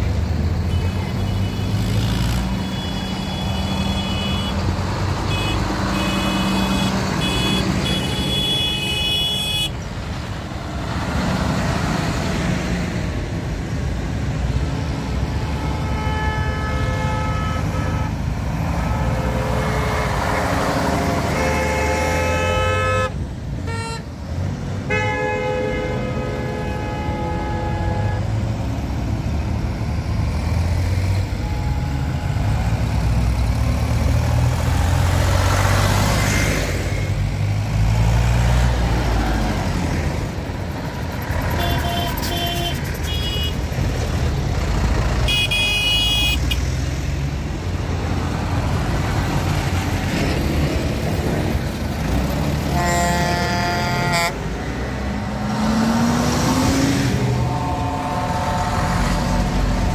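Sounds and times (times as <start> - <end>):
tractor engines running: 0.0 - 24.9, 28.2 - 59.9
vehicle horns tooting: 2.5 - 9.8, 15.4 - 24.1, 24.9 - 28.4, 31.3 - 32.8, 41.4 - 43.6, 45.3 - 46.6, 52.6 - 54.5, 57.2 - 59.9
engine revving: 32.4 - 40.4, 48.0 - 59.9.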